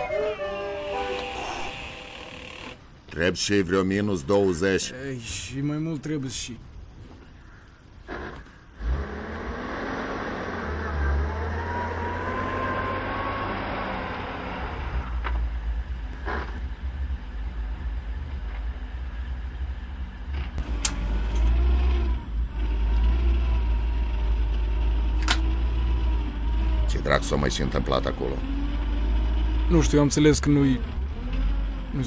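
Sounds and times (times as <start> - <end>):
vehicle engine rumbling with whine: 6.9 - 32.0.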